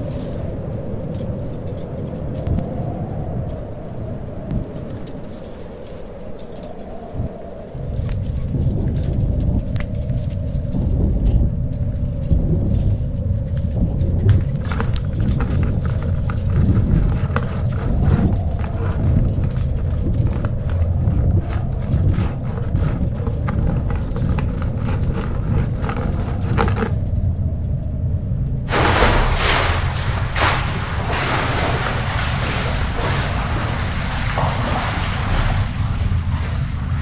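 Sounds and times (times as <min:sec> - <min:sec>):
rope clicking and ticking: 0:00.0 - 0:27.2
loud low rumbling drone: 0:13.7 - 0:37.0.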